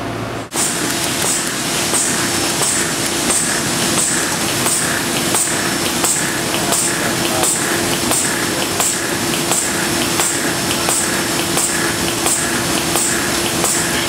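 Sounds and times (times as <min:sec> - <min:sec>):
machine humming: 0:00.0 - 0:14.0
machine clicks: 0:00.5 - 0:14.0.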